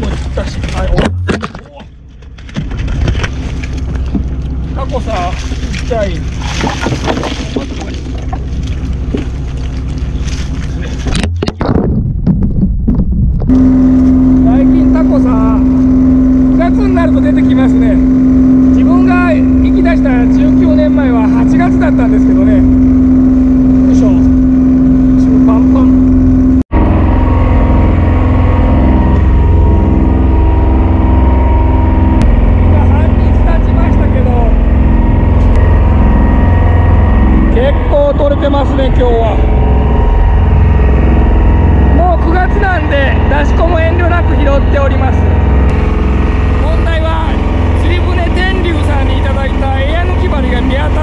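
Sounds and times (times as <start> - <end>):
boat engine running: 0.0 - 51.0.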